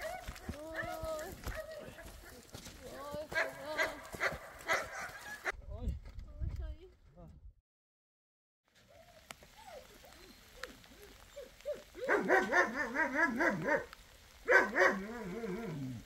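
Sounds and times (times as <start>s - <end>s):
dog yelping: 8.9s - 13.9s, 14.5s - 15.8s.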